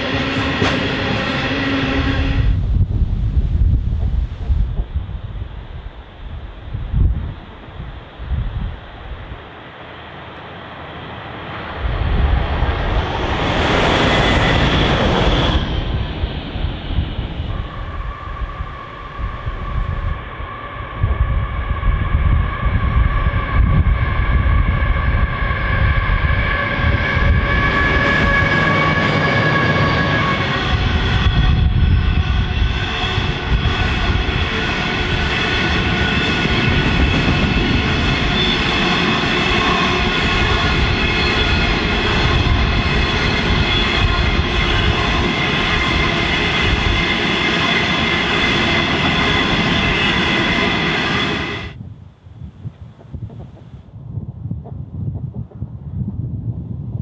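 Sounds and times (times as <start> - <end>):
freight train rumbling by: 0.0 - 51.8
passenger railcar rushing past: 0.0 - 51.8
high whining wheel squeal: 13.2 - 51.8.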